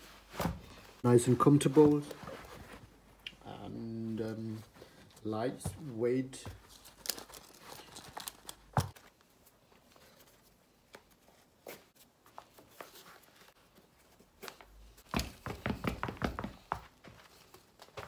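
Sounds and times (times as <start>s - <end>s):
boot laces rustling and clicking: 4.4s - 18.0s
boots knocking on floor: 15.1s - 17.2s.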